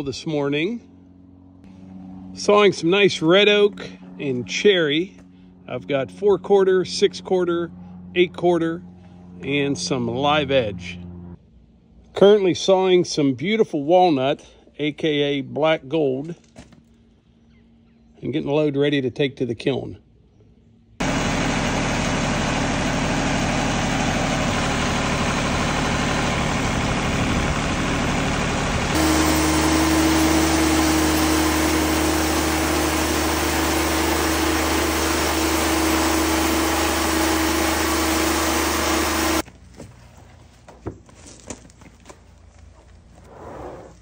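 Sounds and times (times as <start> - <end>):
hum with pitched tone: 0.0 - 12.2, 20.2 - 39.4
band sawmill sawing log: 21.0 - 39.4.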